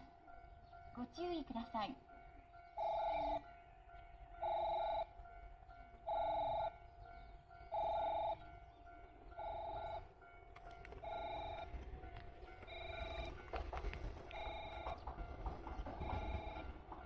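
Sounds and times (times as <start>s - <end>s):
electronic warning beeps: 16.0s - 16.7s.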